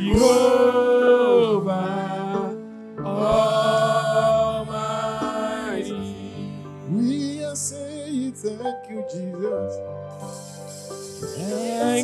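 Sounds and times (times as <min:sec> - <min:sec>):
single voice singing: 0:00.0 - 0:06.2, 0:11.3 - 0:12.0
gospel choir singing: 0:00.0 - 0:06.6, 0:10.3 - 0:12.0
instrumental backing: 0:00.0 - 0:12.0.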